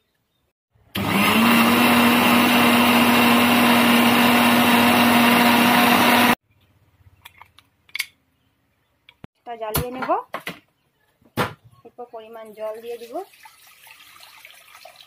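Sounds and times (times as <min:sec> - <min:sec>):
mixer grinder motor whirring: 0:00.9 - 0:06.4.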